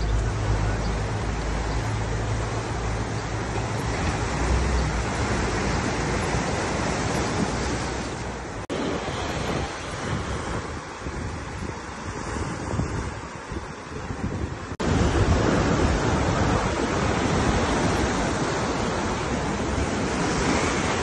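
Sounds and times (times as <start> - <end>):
wind rumbling on microphone: 0.0 - 21.0
surf breaking on beach: 0.5 - 21.0.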